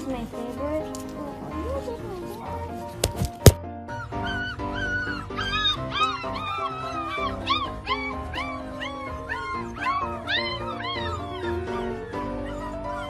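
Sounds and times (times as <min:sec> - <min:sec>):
background music: 0:00.0 - 0:13.0
puppy whining: 0:03.9 - 0:13.0.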